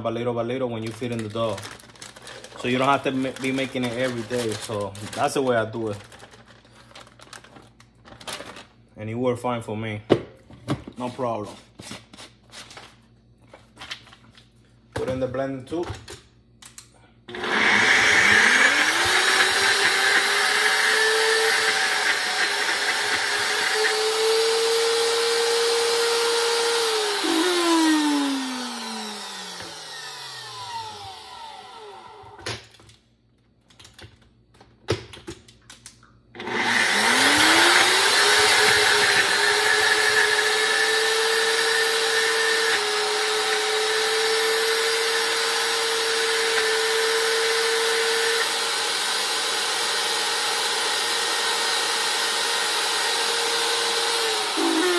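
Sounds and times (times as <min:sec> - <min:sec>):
blender motor running: 0:01.0 - 0:05.3, 0:17.3 - 0:32.4, 0:36.4 - 0:54.9.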